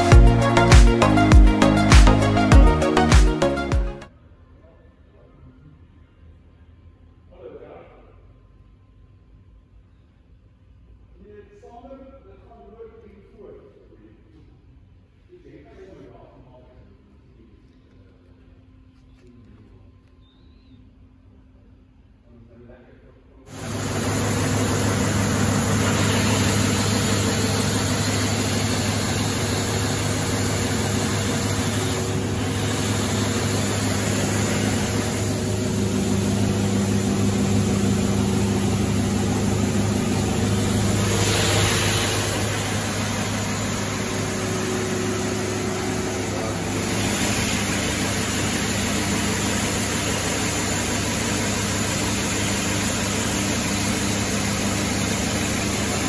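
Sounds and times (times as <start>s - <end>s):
belt sander humming: 23.5s - 56.0s.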